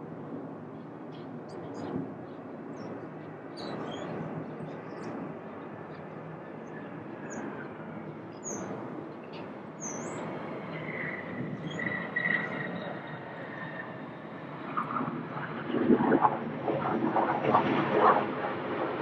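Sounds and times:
jet airliner engine noise: 0:00.0 - 0:19.0
bird chirping: 0:08.3 - 0:10.2.

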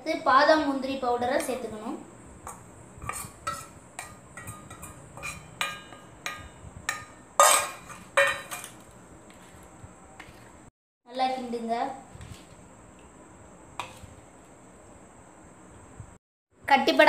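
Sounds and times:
spoon stirring in steel vessel: 0:02.4 - 0:10.6
spoon clinking steel bowls: 0:02.5 - 0:08.9.

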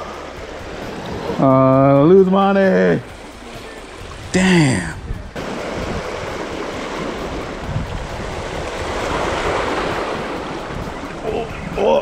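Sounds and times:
surf washing over rocks: 0:00.0 - 0:12.0
wind buffeting microphone: 0:03.8 - 0:12.0.

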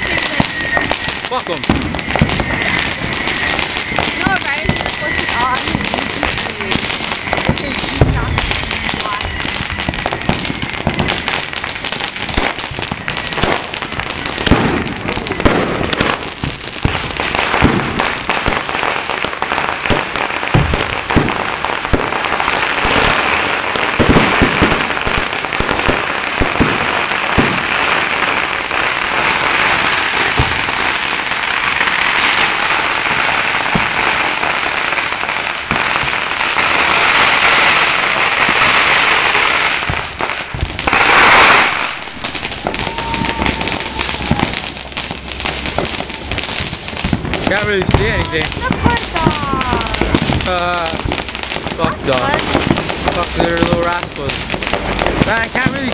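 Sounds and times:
firework crackling: 0:00.0 - 0:55.9
firework shells bursting: 0:00.0 - 0:55.9.

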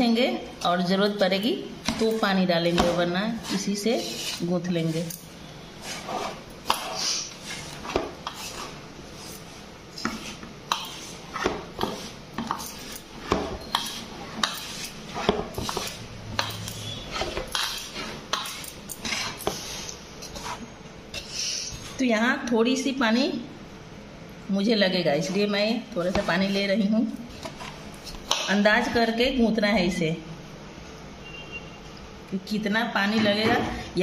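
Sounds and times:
fingers scraping steel bowl: 0:03.3 - 0:05.2.

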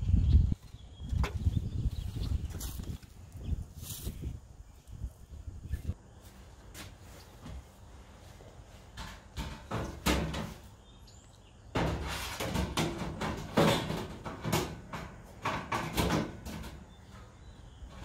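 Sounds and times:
metal filter scraping along metal: 0:11.8 - 0:17.2.

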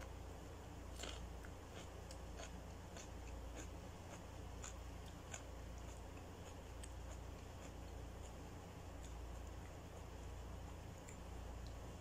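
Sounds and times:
low steady hum: 0:00.0 - 0:12.0
chewing: 0:00.9 - 0:10.0.

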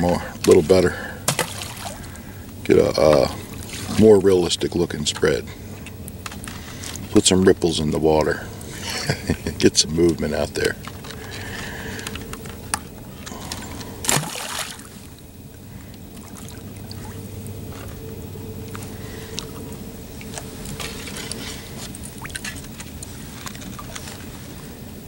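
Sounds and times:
pond water sloshing and dripping: 0:00.0 - 0:25.0.

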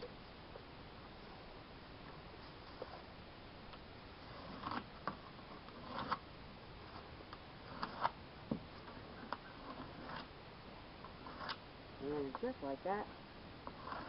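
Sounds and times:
pencil scratching on wood: 0:13.7 - 0:14.0.

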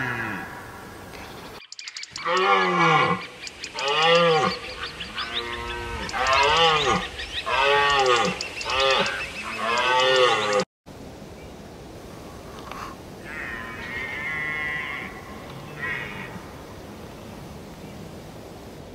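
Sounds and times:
large animal calling: 0:02.1 - 0:10.6, 0:13.2 - 0:16.7.

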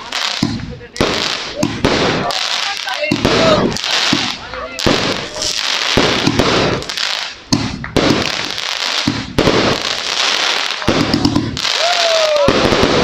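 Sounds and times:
firework crackling: 0:00.0 - 0:13.0
firework launch thumps: 0:06.0 - 0:09.9.

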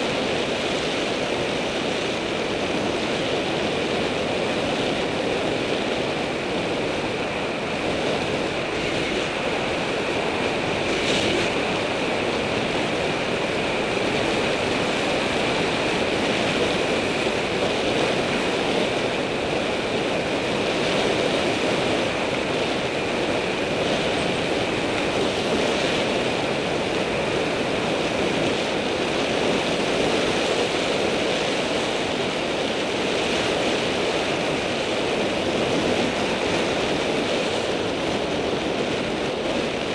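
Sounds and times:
wind on microphone: 0:00.0 - 0:39.9
bicycle tyres rolling on asphalt: 0:00.1 - 0:29.4.

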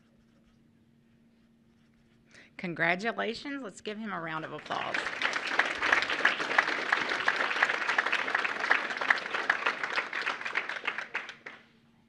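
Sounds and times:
audience applauding: 0:04.6 - 0:11.7.

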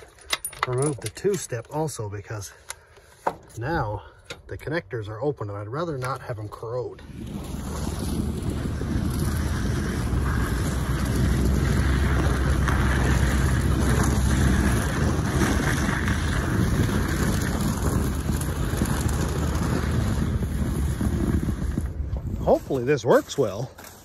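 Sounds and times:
truck engine humming: 0:07.0 - 0:21.0
wind buffeting microphone: 0:07.0 - 0:23.2
tyre noise: 0:07.0 - 0:24.0.

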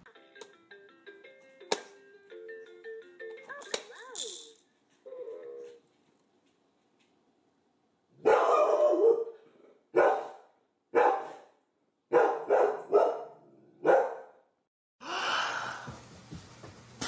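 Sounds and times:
dog barking: 0:08.2 - 0:14.4.

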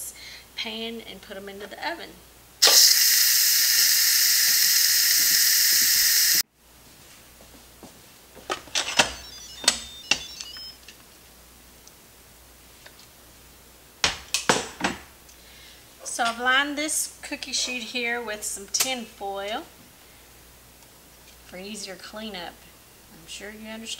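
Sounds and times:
steam venting hiss: 0:02.6 - 0:06.4.

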